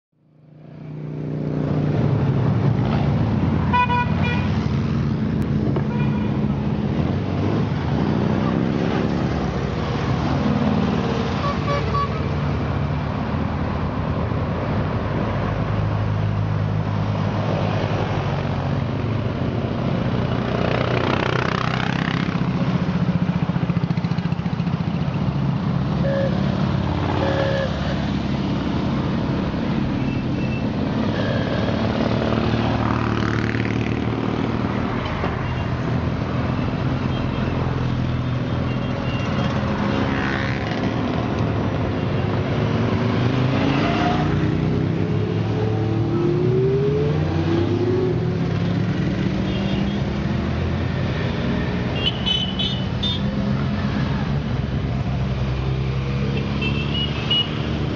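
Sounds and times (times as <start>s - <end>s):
motorcycles riding past: 17.9s - 35.3s, 39.4s - 52.0s
horn beeps: 26.0s - 26.4s, 27.2s - 27.9s.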